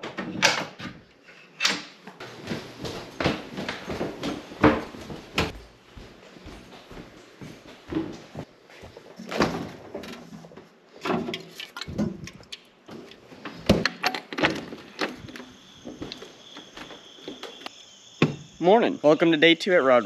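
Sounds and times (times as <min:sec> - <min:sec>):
refrigerator door opening and shutting: 0:00.0 - 0:02.0, 0:09.2 - 0:12.2, 0:12.9 - 0:17.6
insects chirping: 0:10.9 - 0:20.0.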